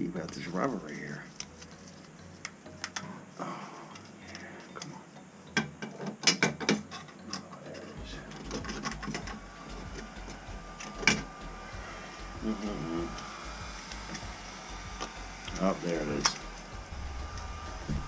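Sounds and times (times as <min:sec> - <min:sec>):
drain parts clicking and knocking: 0:05.5 - 0:10.1.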